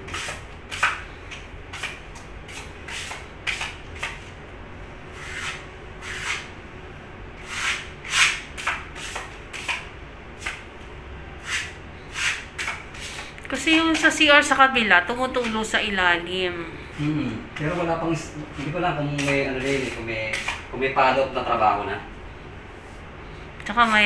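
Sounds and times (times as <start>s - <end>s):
hand tool scraping a wall: 1.7s - 4.3s, 5.2s - 6.5s, 7.4s - 9.8s, 11.4s - 13.3s, 18.6s - 20.6s.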